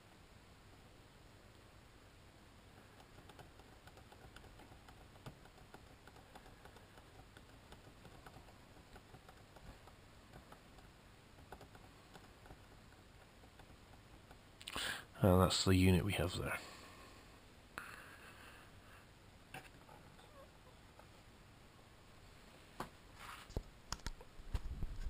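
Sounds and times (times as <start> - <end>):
laptop keyboard clicking: 2.8 - 14.4, 23.9 - 24.2.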